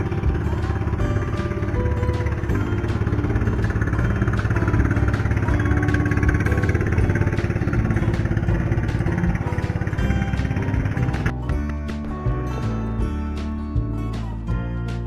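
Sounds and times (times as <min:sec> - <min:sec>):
boat engine droning: 0:00.0 - 0:11.6.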